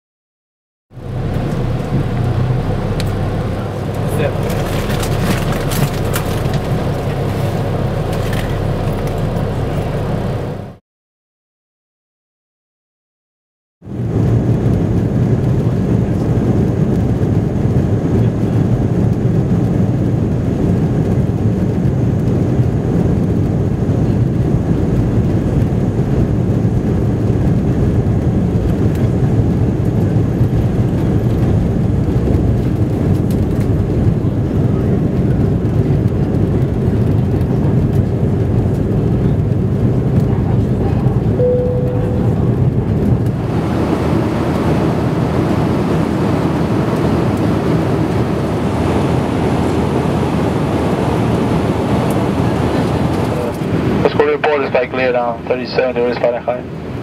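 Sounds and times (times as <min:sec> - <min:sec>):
jet engine and airflow noise: 0:01.0 - 0:10.8, 0:13.8 - 0:57.0
short tone: 0:41.4 - 0:42.8.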